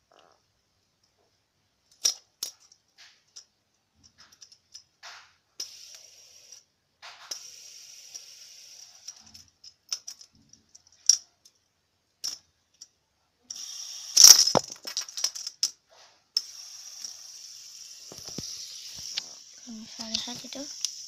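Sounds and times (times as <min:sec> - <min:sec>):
fidget spinner clicks and rattles: 0:01.8 - 0:21.0
faint hiss: 0:16.0 - 0:21.0.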